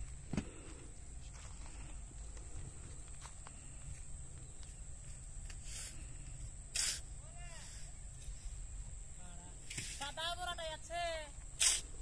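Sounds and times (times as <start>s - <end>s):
short hiss: 5.4s - 8.6s, 9.6s - 10.1s, 11.5s - 12.0s.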